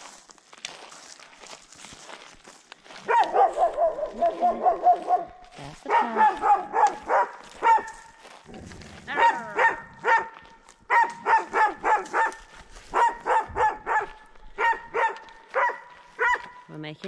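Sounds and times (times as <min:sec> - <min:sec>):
dog barking aggressively: 0:03.0 - 0:08.0, 0:09.1 - 0:16.7.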